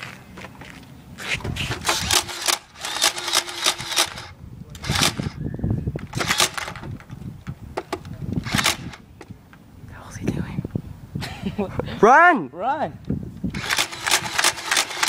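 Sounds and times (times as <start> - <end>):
toy blaster plastic clacks: 1.7 - 5.4, 6.0 - 7.0, 8.4 - 9.0, 13.6 - 15.0.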